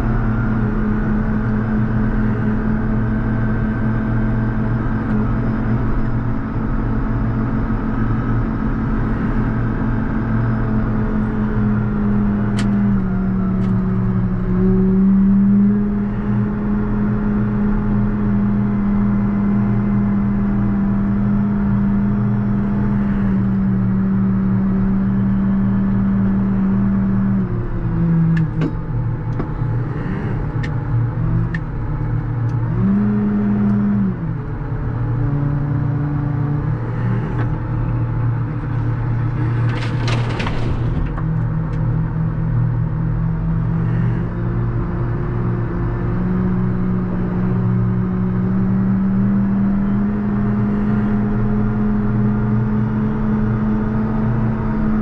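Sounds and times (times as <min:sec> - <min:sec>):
diesel tractor engine under load: 0:00.0 - 0:55.0
snow plow scraping: 0:38.6 - 0:41.3.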